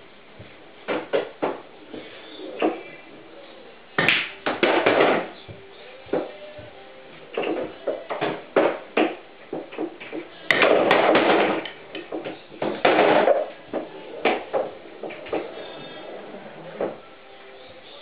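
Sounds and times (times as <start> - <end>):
pool balls knocking and clicking: 0.3 - 3.3, 3.9 - 17.1
cue striking ball: 0.8 - 2.9, 4.0 - 5.4, 7.3 - 17.0
balls rolling into pockets: 4.0 - 17.0.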